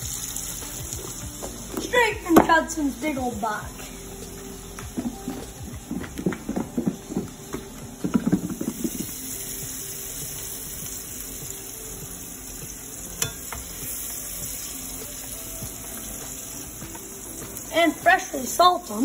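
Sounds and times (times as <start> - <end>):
oil sizzling in skillet: 0.0 - 19.0
metal tongs click: 13.2 - 13.5.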